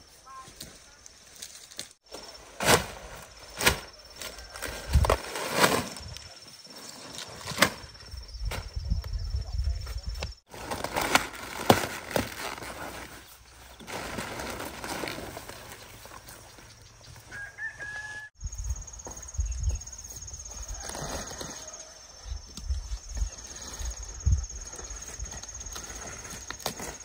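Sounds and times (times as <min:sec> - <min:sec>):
high-pitched insect whine: 0:18.1 - 0:27.0.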